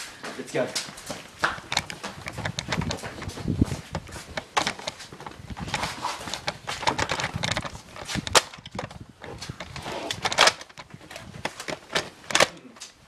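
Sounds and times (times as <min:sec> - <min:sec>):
footsteps on paving: 0:00.0 - 0:06.9
handheld camera rustling: 0:00.8 - 0:13.0.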